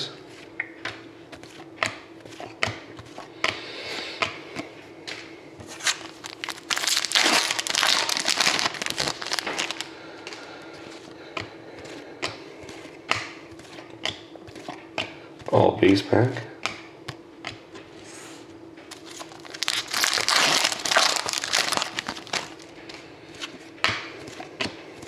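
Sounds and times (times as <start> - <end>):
steady low hum: 0.0 - 25.0
foil wrapper crinkling and tearing: 5.7 - 9.9, 18.9 - 22.7.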